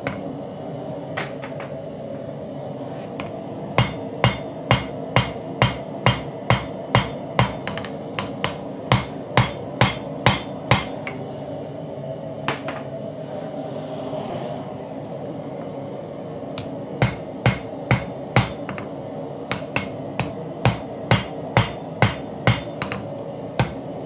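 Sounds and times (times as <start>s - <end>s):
low machine whine: 0.0s - 24.0s
machinery humming: 0.0s - 24.0s
hammer striking hot steel on anvil: 3.2s - 11.2s, 17.0s - 18.9s, 19.5s - 23.9s.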